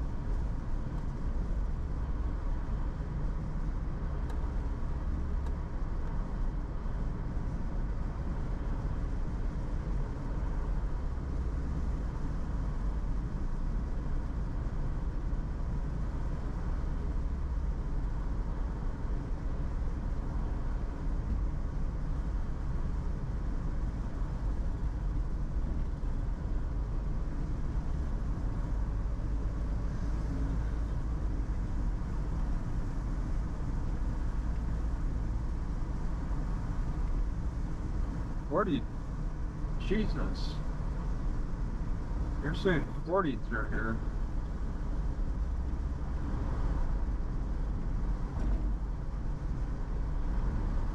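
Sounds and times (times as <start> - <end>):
car engine and tyre rumble: 0.0 - 50.9
faint steady whine: 0.0 - 50.9.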